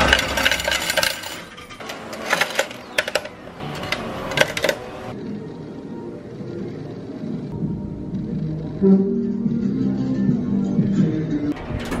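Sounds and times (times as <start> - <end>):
coins clinking in metal slot: 0.0 - 5.2.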